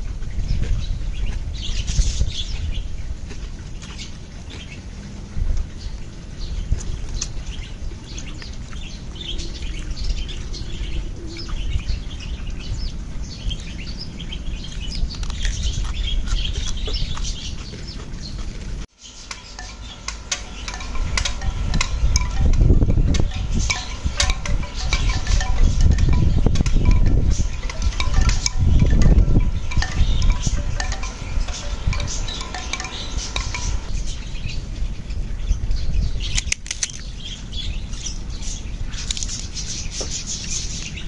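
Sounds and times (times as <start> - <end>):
birds chirping: 0.0 - 41.0
bamboo wind chimes clacking: 19.1 - 34.6.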